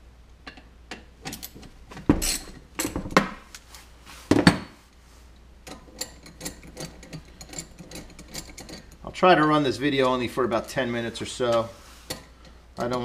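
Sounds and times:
metal tools clinking: 5.7 - 10.2.

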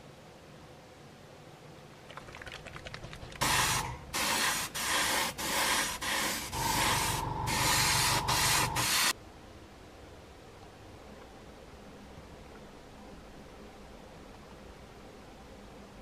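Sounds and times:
faint rapid clicking: 2.0 - 3.5
spray paint hissing bursts: 3.4 - 9.2.

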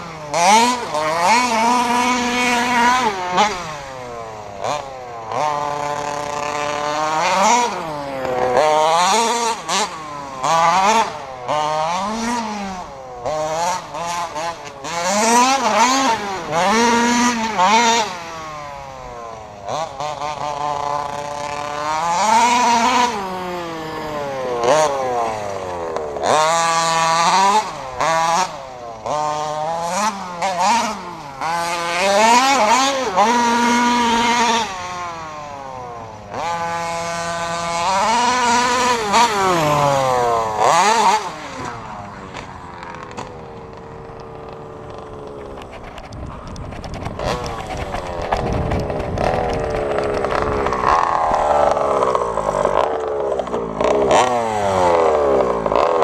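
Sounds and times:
two-stroke engine revving: 0.0 - 56.0.

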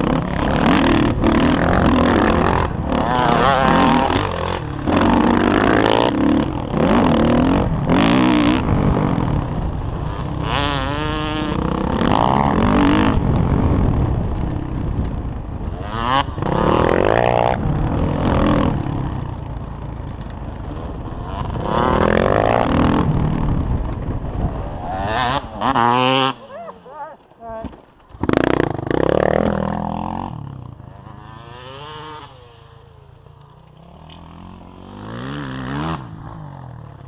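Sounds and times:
wind rumble on microphone: 0.0 - 26.3
dirt bike engine revving: 0.0 - 27.4, 28.1 - 37.0.

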